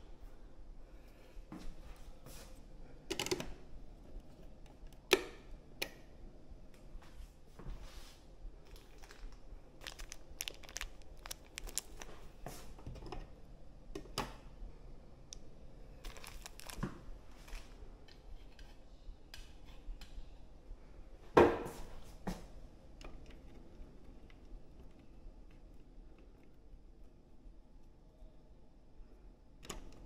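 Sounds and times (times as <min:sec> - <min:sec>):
plastic bag crinkling and tearing: 0:08.7 - 0:12.3, 0:16.0 - 0:17.7.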